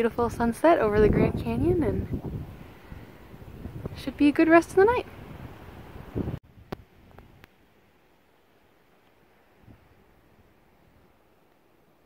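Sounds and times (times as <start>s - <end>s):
wind buffeting microphone: 0.0s - 7.5s.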